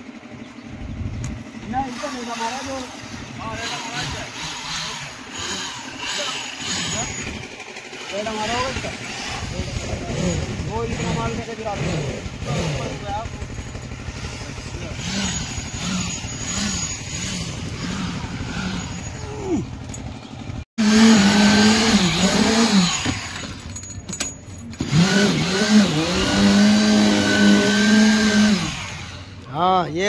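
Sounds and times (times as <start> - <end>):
concrete vibrator running: 0.0 - 30.0.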